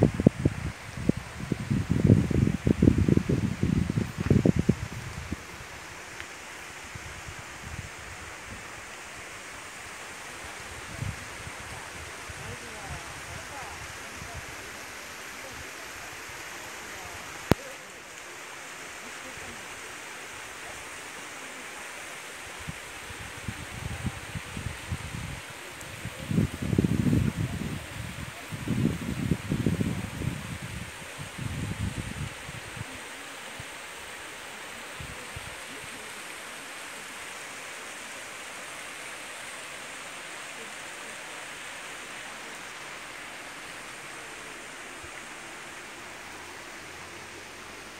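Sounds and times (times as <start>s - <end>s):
stream flowing over rocks: 0.0s - 47.9s.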